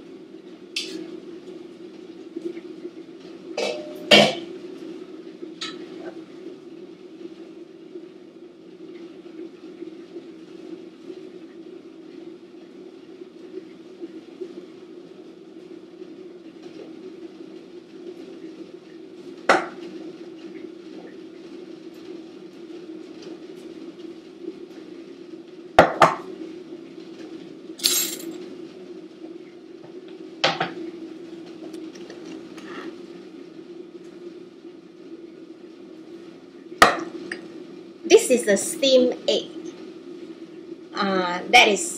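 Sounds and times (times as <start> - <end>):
steady low hum: 0.0 - 41.9
metal pot and lid clanking: 3.6 - 4.4.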